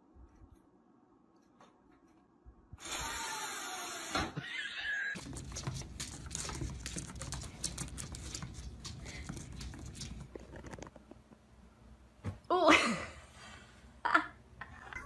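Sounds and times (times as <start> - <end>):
cat paws on wooden floor: 5.2 - 11.0.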